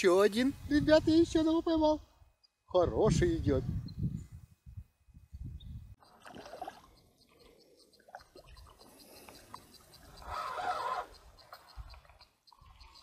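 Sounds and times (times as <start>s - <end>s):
fish splashing at the water surface: 6.0s - 7.4s.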